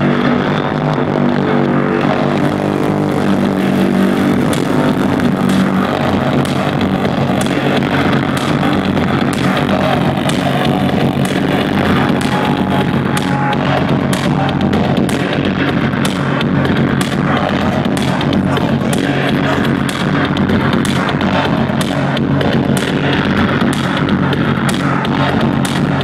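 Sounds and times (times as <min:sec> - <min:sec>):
loud electronic music: 0:00.0 - 0:26.0.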